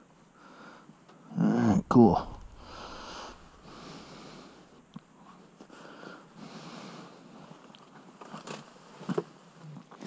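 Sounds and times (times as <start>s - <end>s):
person breathing: 0.4s - 0.9s, 2.2s - 4.8s, 5.6s - 7.3s.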